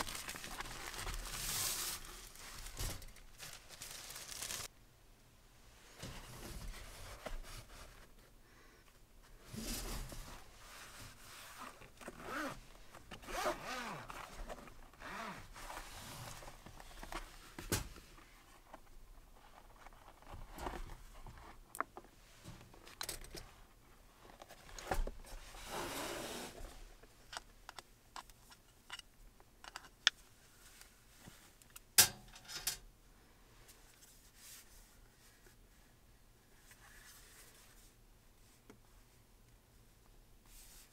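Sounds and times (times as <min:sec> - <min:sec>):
zipper being drawn open: 0:11.6 - 0:12.6, 0:13.2 - 0:15.5.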